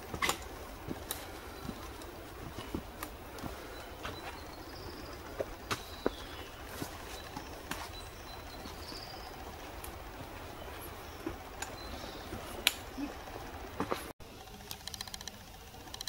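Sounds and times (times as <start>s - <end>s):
faint bird calls: 0.0s - 14.0s
footsteps on rocky trail: 0.0s - 14.1s
trekking pole clicks: 0.1s - 1.3s, 12.6s - 13.0s, 14.5s - 16.0s.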